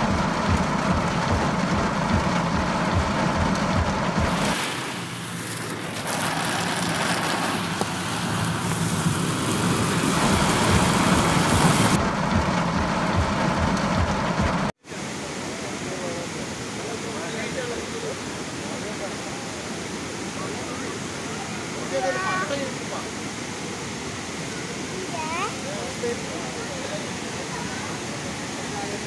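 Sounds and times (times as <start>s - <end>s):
heavy rain drumming on car roof: 0.0s - 12.0s
rushing floodwater: 4.2s - 12.0s, 14.8s - 29.0s.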